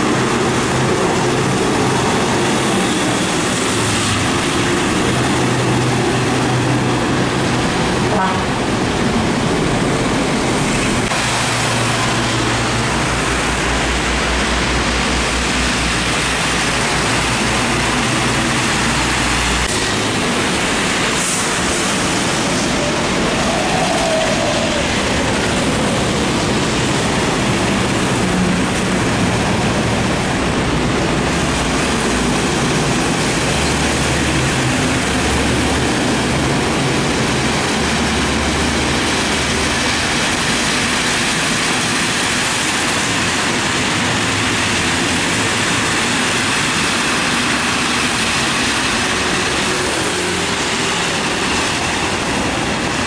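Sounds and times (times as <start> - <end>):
falling rain: 0.0 - 53.0
tyres hissing through water: 10.8 - 29.9, 36.6 - 53.0.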